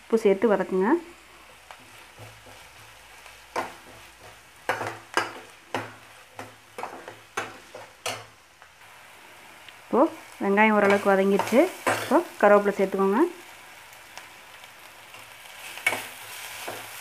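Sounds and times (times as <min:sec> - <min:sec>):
onions sizzling in a pan: 0:00.0 - 0:17.0
spoon scraping a pan: 0:01.4 - 0:08.3, 0:15.1 - 0:17.0.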